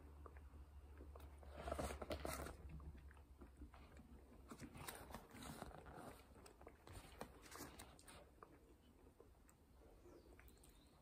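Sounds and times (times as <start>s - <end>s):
book pages rustling: 1.5s - 2.7s, 4.4s - 8.3s.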